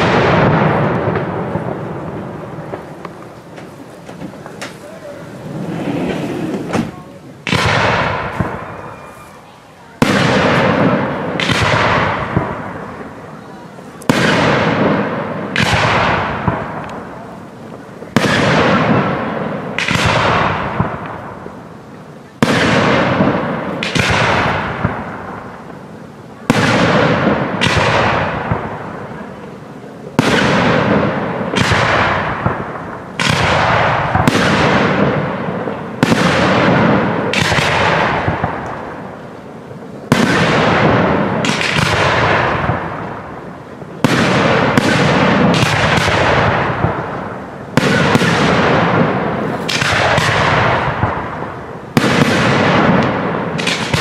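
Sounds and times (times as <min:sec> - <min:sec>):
firework shells bursting: 0:00.0 - 0:09.4, 0:30.1 - 0:54.0.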